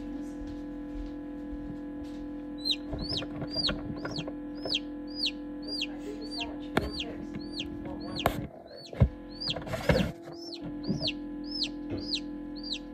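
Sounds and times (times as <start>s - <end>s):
steady hum: 0.0s - 12.9s
chick peeping: 2.6s - 12.9s.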